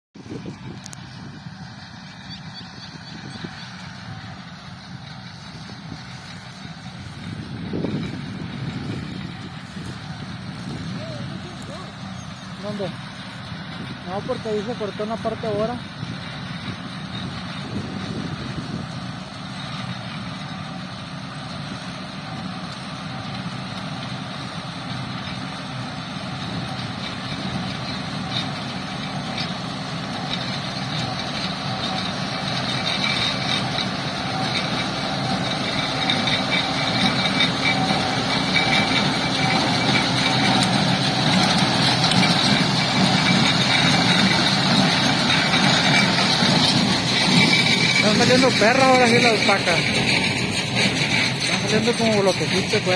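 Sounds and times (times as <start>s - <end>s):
tractor engine running: 0.2s - 52.9s
baler mechanism clatter: 26.5s - 52.9s.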